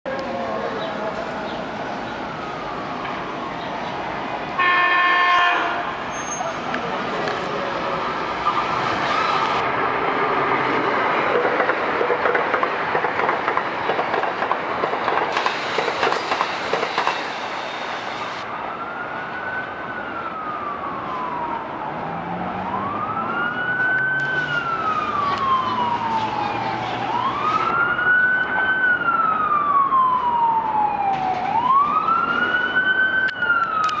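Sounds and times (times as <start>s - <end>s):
emergency siren wailing: 0.6s - 12.4s, 18.3s - 34.0s
train passing at speed: 2.9s - 18.4s.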